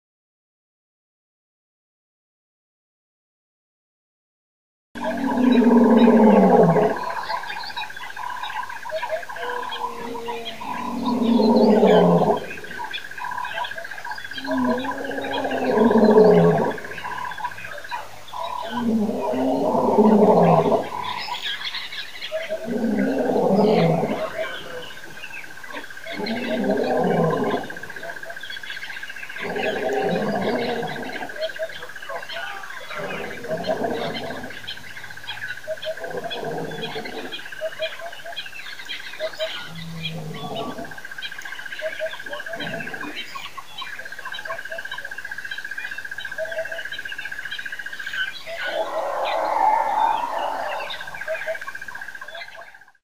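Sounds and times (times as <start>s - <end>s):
lion roaring: 5.0s - 7.2s, 9.3s - 12.9s, 14.3s - 21.4s, 22.4s - 28.4s, 29.4s - 31.8s, 32.4s - 37.4s, 39.2s - 41.0s, 41.9s - 43.2s, 48.5s - 51.6s
birds chirping: 5.0s - 53.0s.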